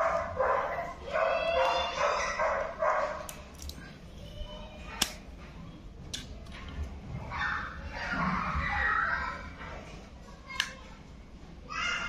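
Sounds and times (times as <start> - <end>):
dog barking and yipping: 0.0 - 3.2.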